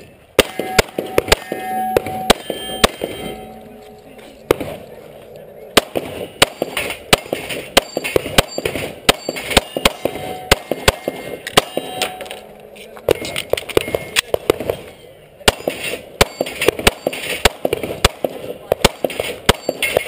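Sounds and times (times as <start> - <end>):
pistol shots: 0.3 - 3.4, 5.7 - 12.4, 15.4 - 20.0
steel target plates ringing: 0.4 - 14.3, 15.8 - 17.4, 19.5 - 20.0.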